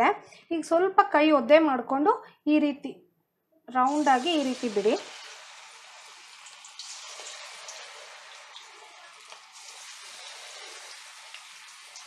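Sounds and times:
batter deep-frying in oil: 0:03.8 - 0:12.0.

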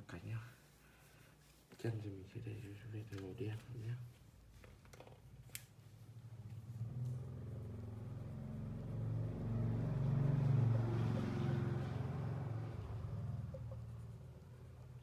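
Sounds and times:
vehicle engine rumble: 0:06.0 - 0:15.0.

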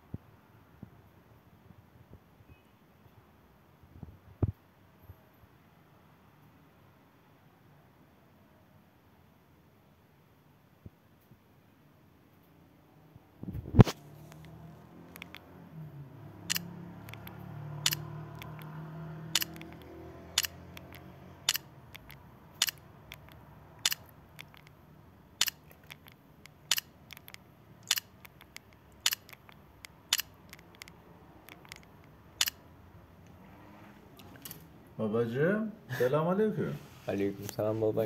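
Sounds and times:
sharp single clicks: 0:13.8 - 0:15.5, 0:16.5 - 0:24.8, 0:25.4 - 0:32.6.

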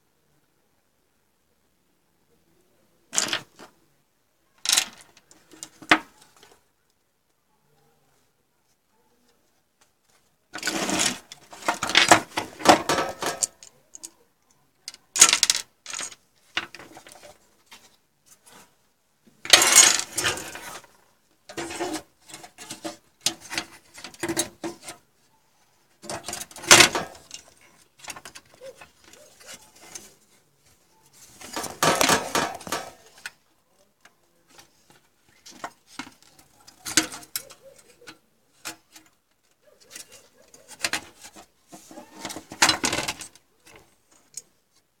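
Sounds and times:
motherboard handling clatter: 0:10.6 - 0:13.7, 0:19.5 - 0:25.0, 0:26.0 - 0:30.2, 0:31.3 - 0:33.4, 0:34.6 - 0:39.1, 0:39.8 - 0:43.8.

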